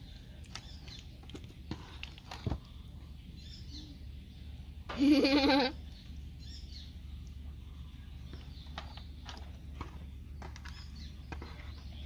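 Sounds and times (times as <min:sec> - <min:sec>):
low steady hum: 0:00.0 - 0:12.0
goat bleating: 0:05.0 - 0:05.8.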